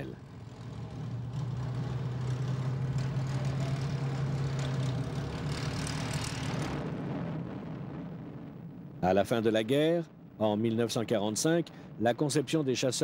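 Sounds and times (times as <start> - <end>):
propeller aircraft engine drone: 0.0 - 9.0.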